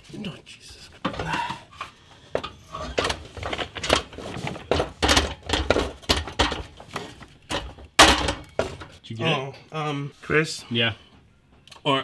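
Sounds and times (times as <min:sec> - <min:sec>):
metallic knocks and rattles: 0:02.3 - 0:09.0.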